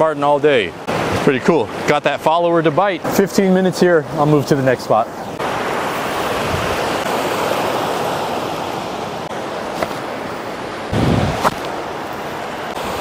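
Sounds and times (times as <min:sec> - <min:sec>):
stream water rushing: 0:00.0 - 0:13.0
short thump: 0:09.8 - 0:10.0.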